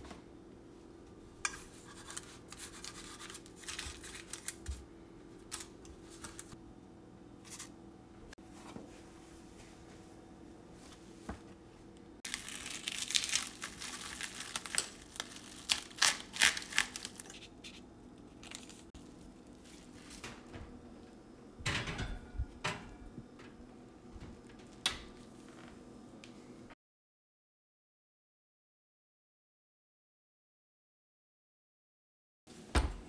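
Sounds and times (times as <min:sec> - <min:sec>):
cling film crinkling: 0:01.9 - 0:04.8, 0:12.3 - 0:20.4.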